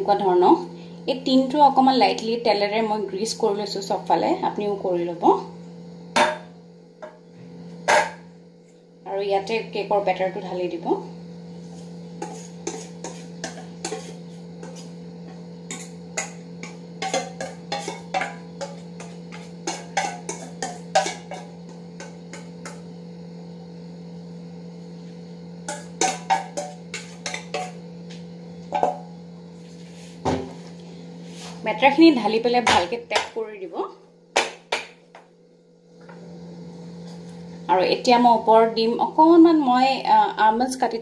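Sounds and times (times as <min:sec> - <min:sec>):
steady low hum: 0:00.0 - 0:41.0
whisk clinking on steel bowl: 0:12.2 - 0:22.8, 0:25.7 - 0:27.8.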